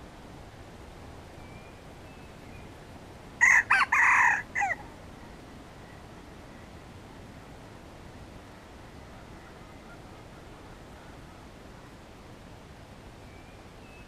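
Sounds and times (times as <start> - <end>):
rooster crowing: 3.4 - 4.8.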